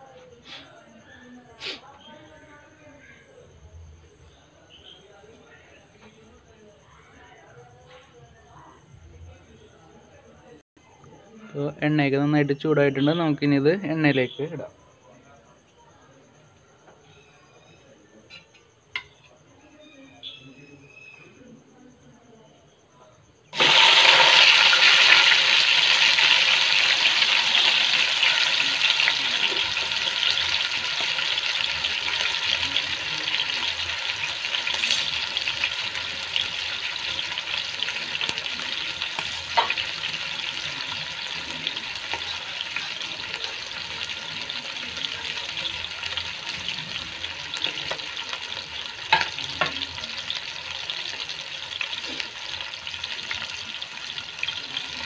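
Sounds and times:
chicken sizzling in oil: 23.5s - 55.0s.

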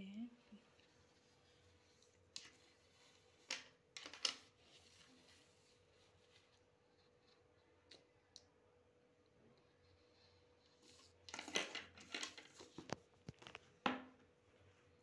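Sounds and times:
paper rustling and scraping on desk: 0.8s - 6.7s, 10.7s - 13.6s.

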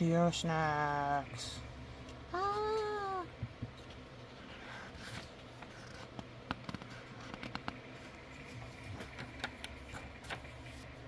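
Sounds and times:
small clicks and taps: 5.6s - 7.8s.

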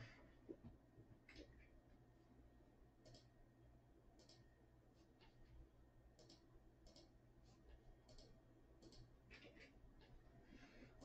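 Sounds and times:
low steady hum: 0.0s - 11.0s
mouse and keyboard clicks: 3.0s - 3.3s, 6.2s - 7.1s, 8.0s - 10.1s.

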